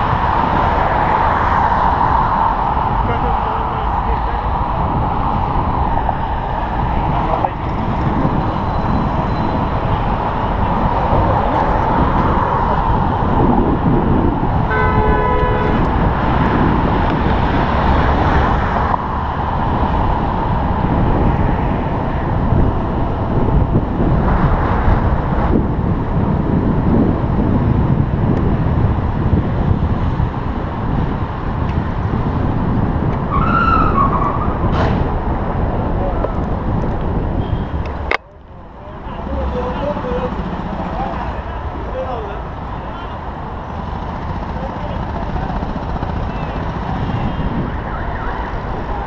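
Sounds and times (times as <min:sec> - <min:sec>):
road traffic noise: 0:00.0 - 0:49.0
vehicle horn: 0:14.6 - 0:16.0, 0:37.4 - 0:37.9.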